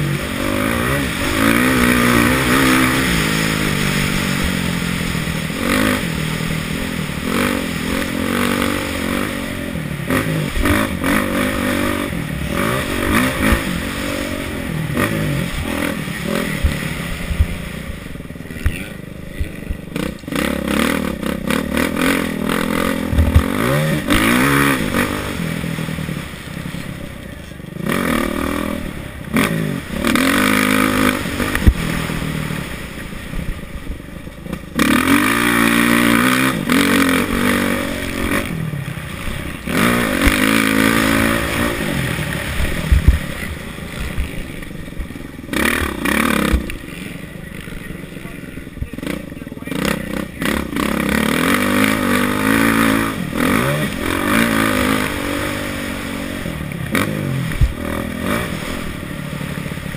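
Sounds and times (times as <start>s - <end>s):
bike rattling and scraping: 0.0s - 59.9s
motocross engine revving: 0.0s - 59.9s.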